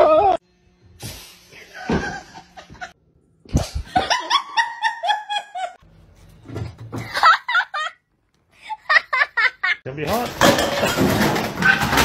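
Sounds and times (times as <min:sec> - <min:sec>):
person laughing: 0:01.7 - 0:02.9, 0:03.6 - 0:05.8, 0:07.0 - 0:08.0, 0:08.6 - 0:09.8.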